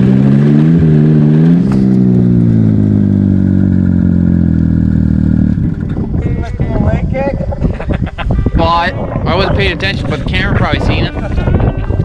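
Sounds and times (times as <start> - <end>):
snowmobile engine revving: 0.0 - 5.6.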